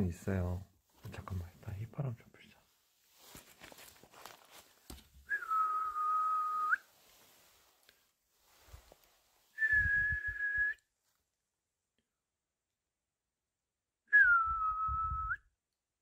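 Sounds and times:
person whistling long notes: 5.3s - 6.9s, 9.6s - 10.8s, 14.1s - 15.4s.

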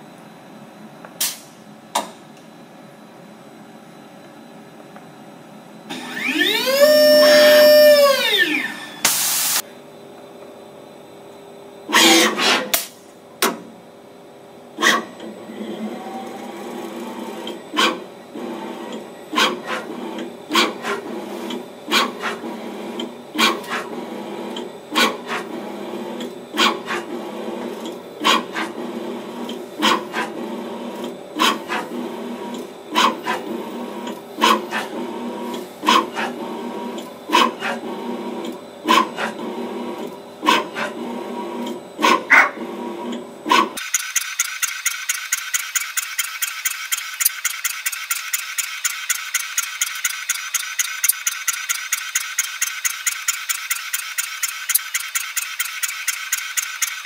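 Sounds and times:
machine hum: 5.7s - 11.9s
sharp probe clicks: 43.8s - 57.0s.

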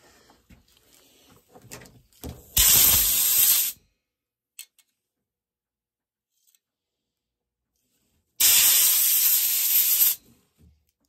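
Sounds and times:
loud spraying hiss: 2.6s - 3.8s, 8.4s - 10.2s.

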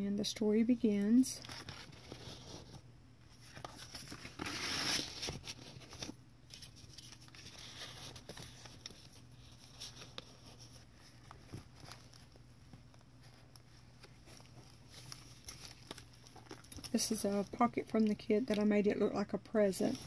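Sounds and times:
paper rustling: 1.4s - 17.6s.

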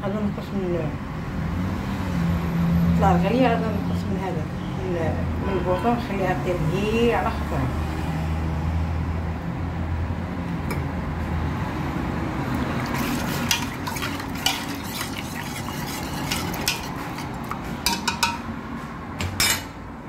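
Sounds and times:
metal spoon scraping steel pot: 12.8s - 18.4s.

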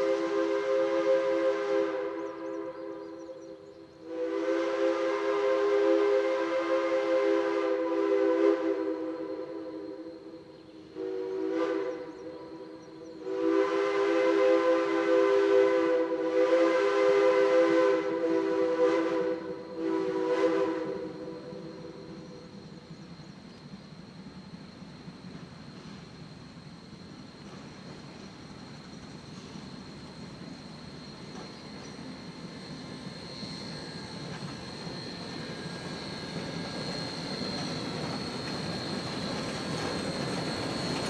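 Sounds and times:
steam locomotive chime whistle: 0.0s - 22.6s.

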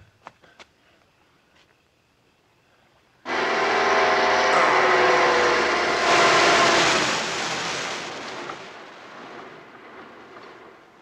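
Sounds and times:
water rushing along hull: 3.3s - 9.4s.

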